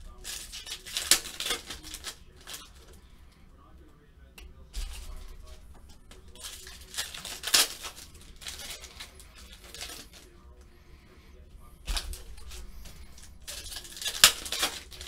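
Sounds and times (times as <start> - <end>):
foil wrappers crinkling and tearing: 0.0 - 3.0, 4.8 - 10.4, 11.8 - 15.0
cards being handled: 0.0 - 3.1, 4.5 - 10.7, 11.7 - 15.0.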